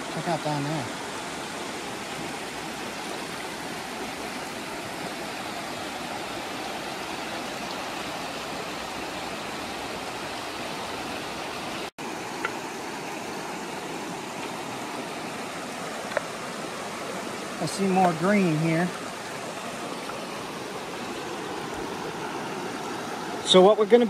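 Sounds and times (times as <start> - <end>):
river water rushing: 0.0 - 24.0.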